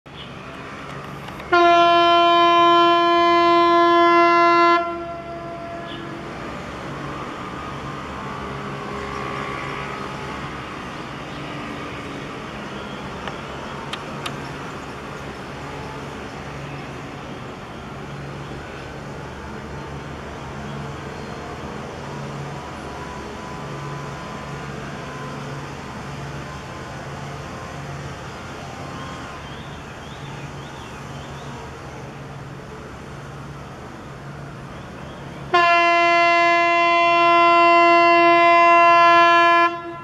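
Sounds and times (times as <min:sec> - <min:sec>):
ship whistle blast: 0:35.5 - 0:40.0.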